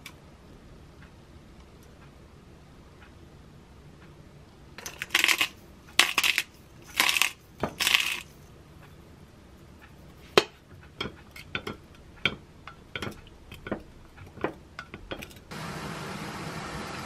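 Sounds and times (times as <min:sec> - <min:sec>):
pot of water hissing on stove: 0:15.5 - 0:17.0.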